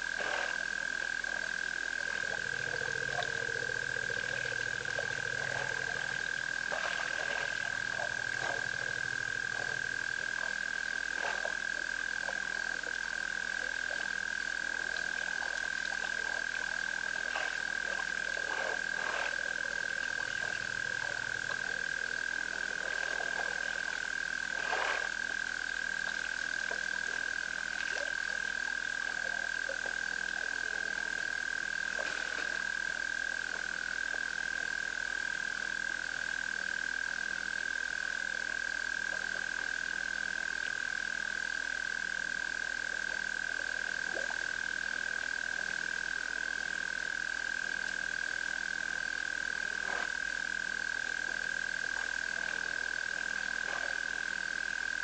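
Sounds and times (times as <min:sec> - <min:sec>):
low drone: 0:00.0 - 0:27.2
frogs croaking: 0:00.0 - 0:55.0
frogs trilling: 0:00.0 - 0:55.0.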